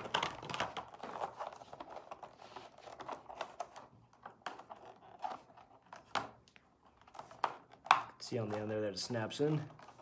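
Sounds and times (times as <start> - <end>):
plastic clicks and scraping: 0.0 - 8.7.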